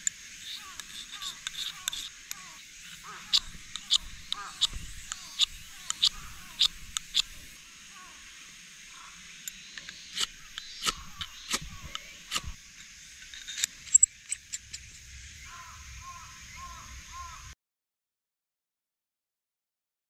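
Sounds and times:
light clicks of striker: 0:00.0 - 0:02.5, 0:03.3 - 0:07.5, 0:09.4 - 0:12.6
striker scraping ferrocerium rod: 0:00.0 - 0:07.6, 0:09.5 - 0:15.0.

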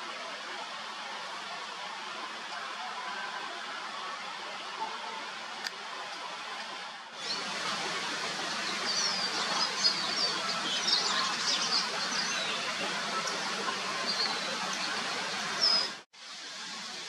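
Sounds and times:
steady outdoor hiss: 0:00.0 - 0:17.0
small birds chirping: 0:08.2 - 0:16.0.

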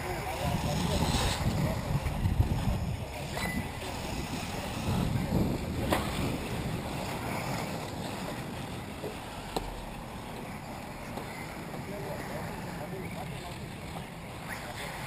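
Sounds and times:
electric rc cars running: 0:00.0 - 0:09.0
wind on microphone: 0:00.0 - 0:15.0.

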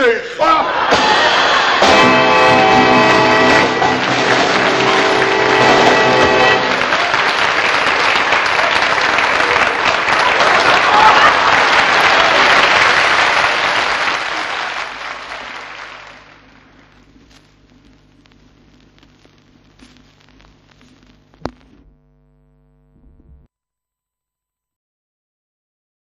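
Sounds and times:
audience applauding: 0:00.7 - 0:17.0
faint low hum: 0:14.3 - 0:23.5.

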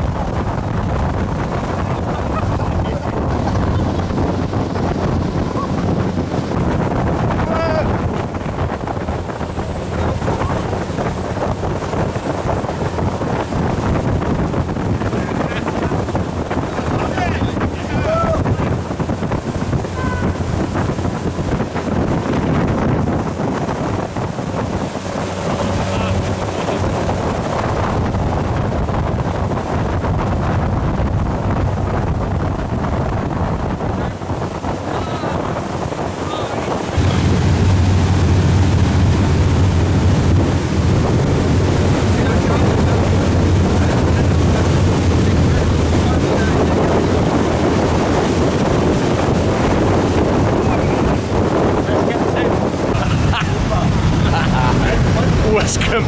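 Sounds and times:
boat engines: 0:00.0 - 0:56.0
rush of churning wake: 0:00.0 - 0:56.0
wind buffeting microphone: 0:00.0 - 0:56.0
low engine drone: 0:24.3 - 0:28.8, 0:36.4 - 0:47.7, 0:52.9 - 0:56.0.

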